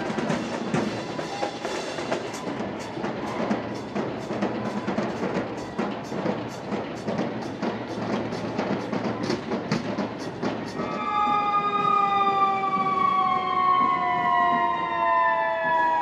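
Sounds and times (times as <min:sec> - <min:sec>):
drums beating: 0:00.0 - 0:16.0
fire truck siren wailing: 0:10.8 - 0:16.0.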